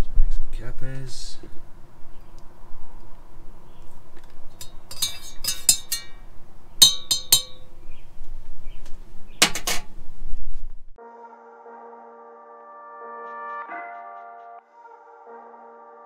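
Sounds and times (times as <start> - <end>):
teaspoon clinking against a mug: 4.6 - 6.2, 6.8 - 7.6
music: 11.0 - 16.0.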